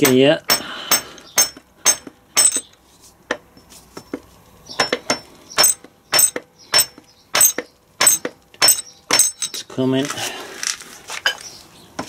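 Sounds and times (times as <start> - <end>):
mallet striking metal gear: 0.0 - 2.7, 4.8 - 9.6.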